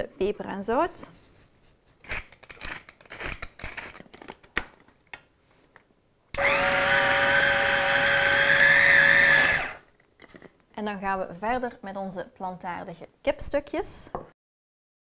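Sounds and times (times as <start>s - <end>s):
electric food chopper whining: 6.4s - 9.8s.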